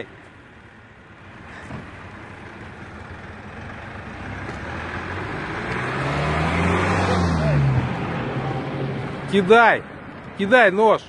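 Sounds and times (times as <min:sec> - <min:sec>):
vehicle engine and tyre noise: 0:00.0 - 0:11.0
low engine hum: 0:00.1 - 0:09.3.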